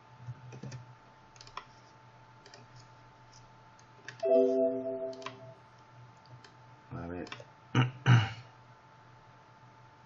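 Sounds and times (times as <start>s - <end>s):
computer mouse clicks: 1.4s - 1.7s, 2.4s - 2.9s.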